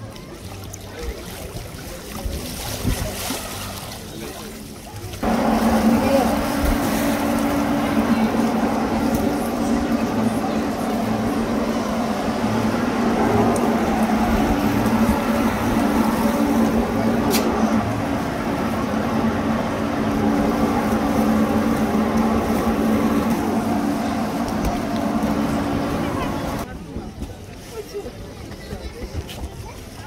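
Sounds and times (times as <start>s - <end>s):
motor humming: 5.2s - 26.7s.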